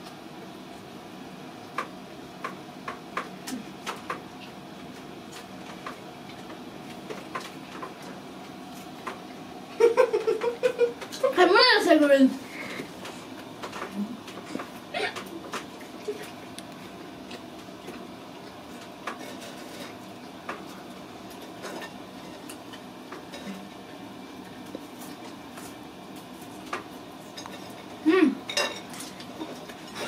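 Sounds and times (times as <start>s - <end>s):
low room hum: 0.0s - 30.0s
plates and cutlery clinking: 28.5s - 30.0s.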